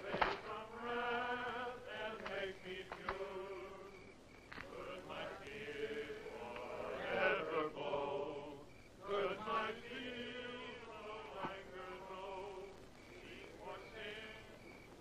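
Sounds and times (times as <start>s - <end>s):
men chanting in unison: 0.0s - 4.0s, 4.7s - 14.6s.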